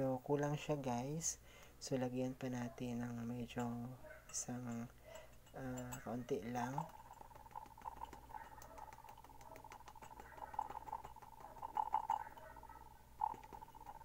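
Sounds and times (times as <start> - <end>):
powder ticking onto a spoon: 5.1 - 12.6, 13.2 - 14.0.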